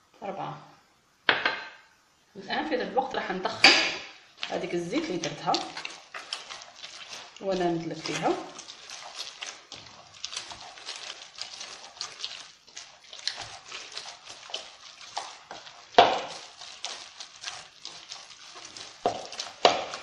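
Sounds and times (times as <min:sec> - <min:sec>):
hands kneading wet dough: 0:02.4 - 0:20.0.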